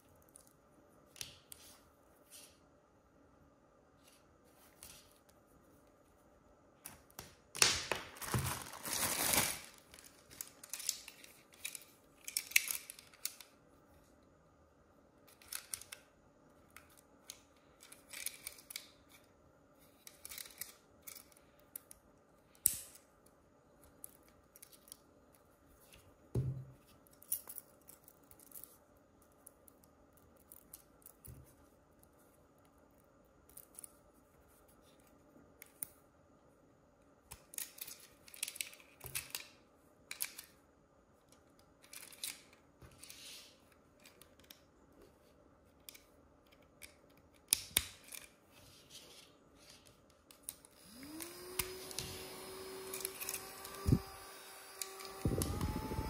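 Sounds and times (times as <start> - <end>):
cardboard and plastic rustling: 7.9 - 13.0.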